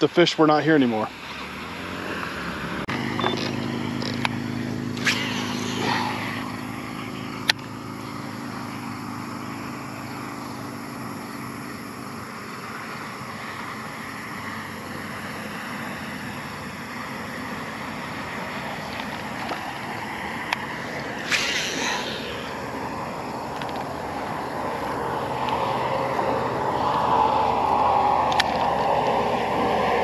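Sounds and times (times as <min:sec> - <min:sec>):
open-air noise on water: 0:00.0 - 0:30.0
low hum: 0:02.8 - 0:14.8, 0:15.8 - 0:30.0
sharp clicks: 0:28.3 - 0:28.8.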